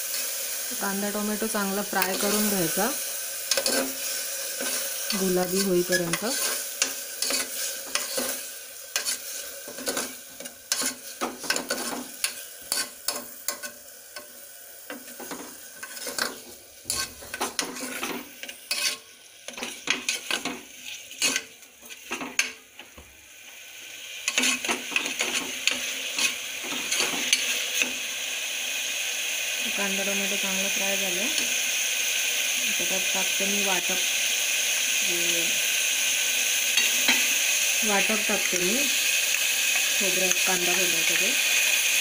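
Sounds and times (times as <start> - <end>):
onion and tomato sizzling: 0.0 - 42.0
metal spoon scraping pot: 15.2 - 20.5.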